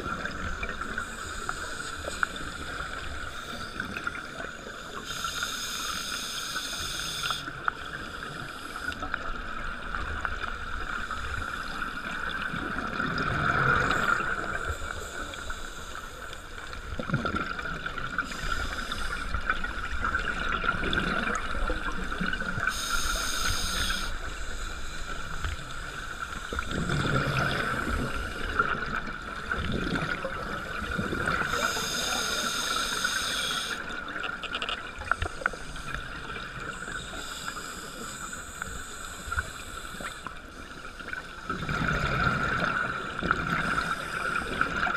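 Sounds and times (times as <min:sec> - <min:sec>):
scuba exhaust bubbles gurgling: 0:00.0 - 0:44.9
underwater hiss and rumble: 0:00.0 - 0:44.9
regulator hisses: 0:22.6 - 0:25.3, 0:31.5 - 0:33.8.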